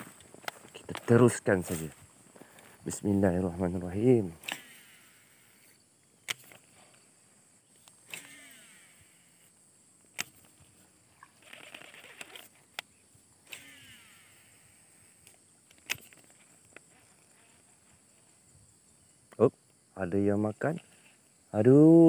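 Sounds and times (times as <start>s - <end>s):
fishing reel spool whine: 4.0s - 5.9s, 8.0s - 9.6s, 10.3s - 12.6s, 13.4s - 15.5s
sharp clicks: 4.4s - 6.8s, 7.8s - 9.1s, 10.0s - 10.6s, 11.4s - 14.4s, 15.2s - 17.2s.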